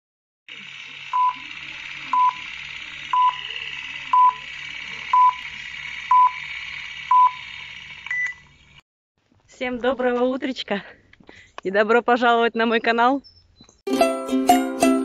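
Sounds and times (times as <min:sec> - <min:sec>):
short beeps: 0:04.1 - 0:04.4, 0:05.2 - 0:05.4.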